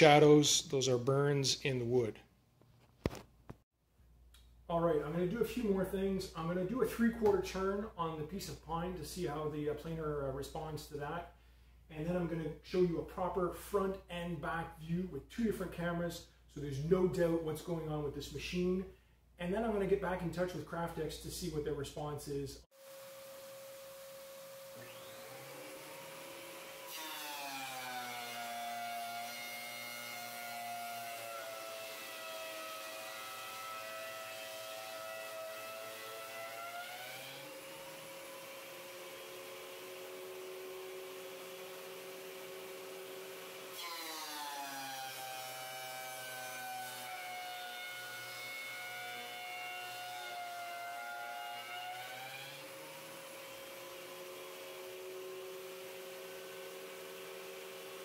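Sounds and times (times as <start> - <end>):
benchtop planer whine: 22.8 - 58.0.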